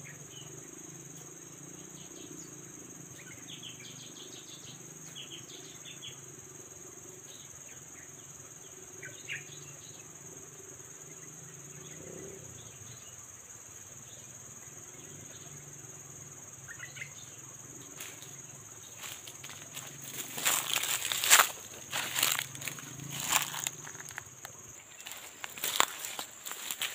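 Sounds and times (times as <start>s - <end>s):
high insect drone: 0.0s - 26.9s
footsteps crunching dry leaves: 18.0s - 26.9s.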